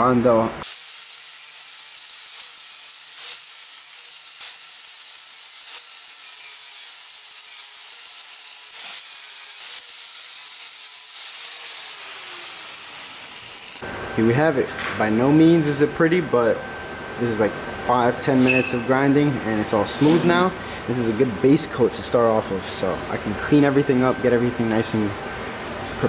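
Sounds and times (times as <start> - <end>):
angle grinder sanding steel: 0.6 - 13.8.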